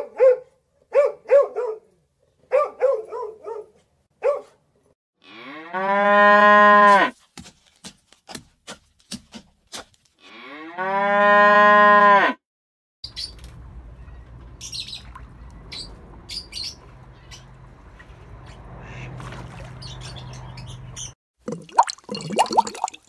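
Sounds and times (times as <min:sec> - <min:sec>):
dog barking: 0:00.0 - 0:04.6
cow mooing: 0:05.2 - 0:07.1, 0:10.3 - 0:12.4.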